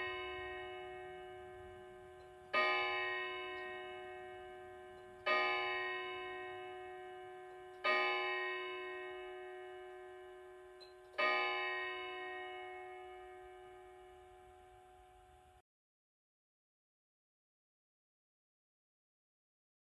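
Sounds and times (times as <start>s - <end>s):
clock striking the hour: 0.0s - 15.0s.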